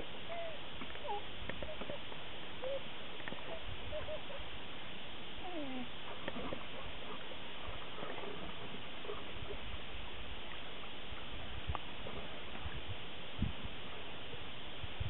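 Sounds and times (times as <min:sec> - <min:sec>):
steady outdoor hiss: 0:00.0 - 0:15.0
water splashing: 0:05.9 - 0:12.8.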